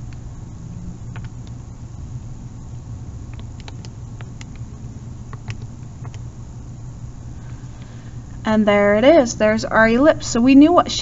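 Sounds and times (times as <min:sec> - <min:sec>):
steady low hum: 0:00.0 - 0:11.0
calculator keys clicking: 0:01.1 - 0:01.6, 0:03.3 - 0:04.7, 0:05.3 - 0:06.2.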